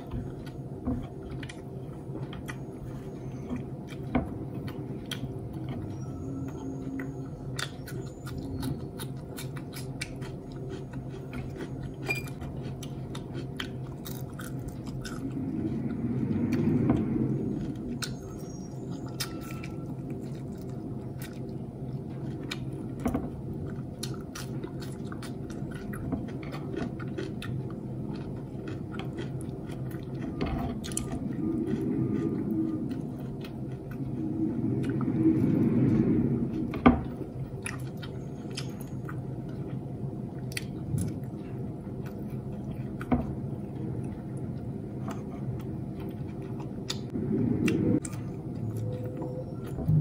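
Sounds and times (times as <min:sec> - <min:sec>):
chewing and mouth clicks: 0:00.0 - 0:36.2, 0:37.4 - 0:50.0
steady low hum: 0:00.0 - 0:50.0
low rumble: 0:12.4 - 0:26.5, 0:27.7 - 0:50.0.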